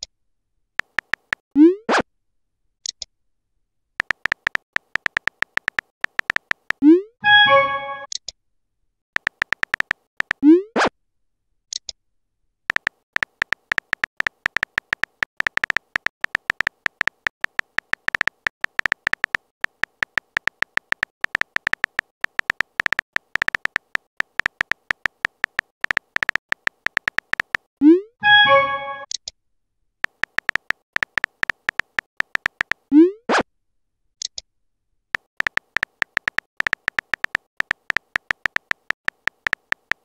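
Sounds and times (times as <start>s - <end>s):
phone keyboard clicks: 0.8s - 1.4s, 4.0s - 8.2s, 9.2s - 10.4s, 12.7s - 27.7s, 30.0s - 32.9s, 35.2s - 40.0s
message received swoosh: 7.2s - 8.1s, 28.2s - 29.1s
message sent swoosh and chime: 7.2s - 8.1s, 28.2s - 29.1s.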